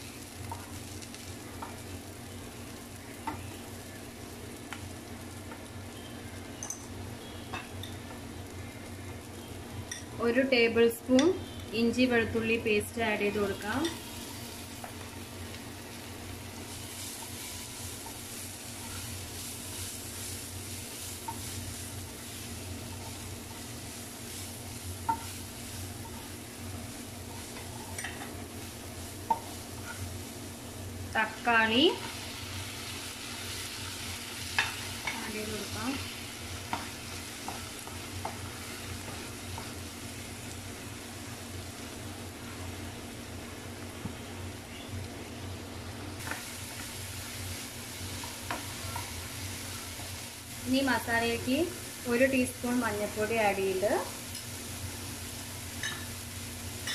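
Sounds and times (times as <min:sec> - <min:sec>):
food sizzling in oil: 0:00.0 - 0:56.9.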